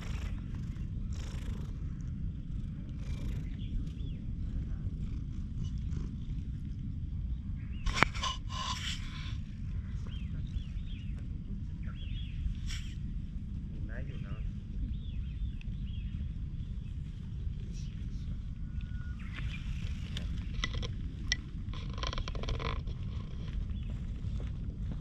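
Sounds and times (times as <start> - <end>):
cat purring: 0.0 - 7.2.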